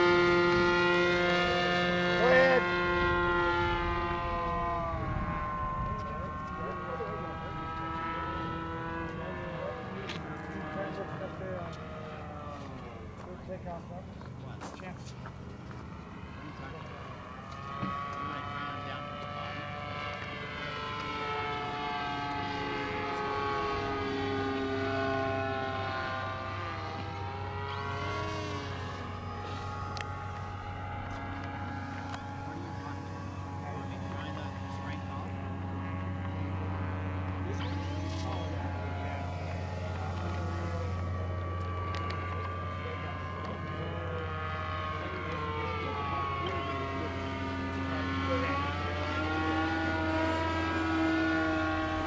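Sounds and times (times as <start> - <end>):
model airplane engine drone: 0.0 - 52.0.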